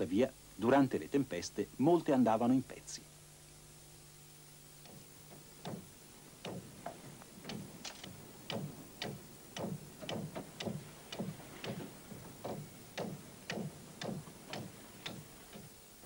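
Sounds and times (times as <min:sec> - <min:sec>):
hammer blows on timber: 0:04.8 - 0:15.7.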